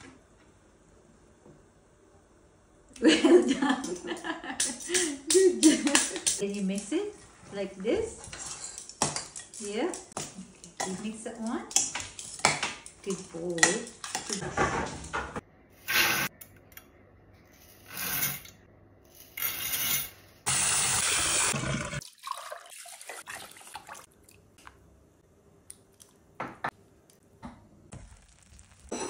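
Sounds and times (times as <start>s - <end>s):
water rushing into pot: 20.6s - 24.3s.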